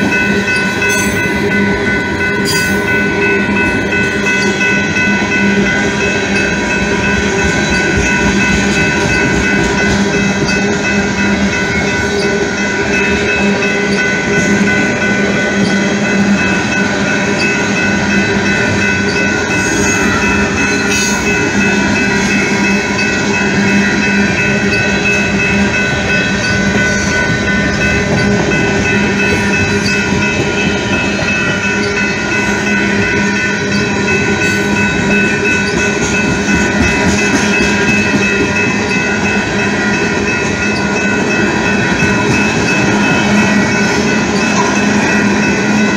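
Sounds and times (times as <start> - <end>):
crossing bell tones: 0.0 - 45.9
freight train wheels rolling: 0.0 - 45.9
rail joint clicks: 0.0 - 45.9.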